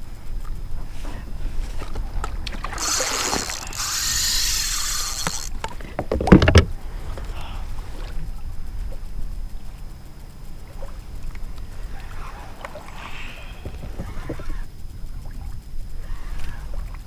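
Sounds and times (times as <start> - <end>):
water rushing and splashing: 10.6 - 14.7.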